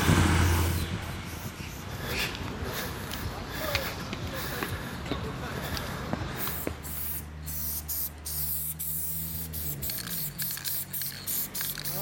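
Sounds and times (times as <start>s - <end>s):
spray can hissing: 5.7s - 12.0s.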